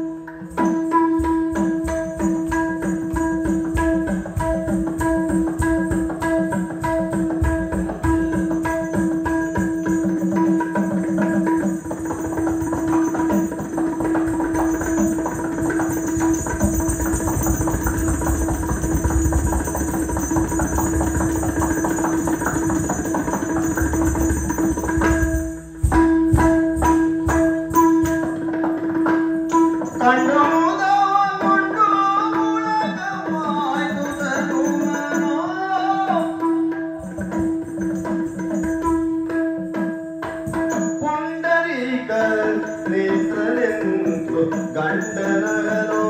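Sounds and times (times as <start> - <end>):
hand drumming: 0.0 - 41.2, 42.2 - 46.0
small hand cymbals: 0.0 - 46.0
man singing: 29.9 - 36.6, 41.0 - 46.0.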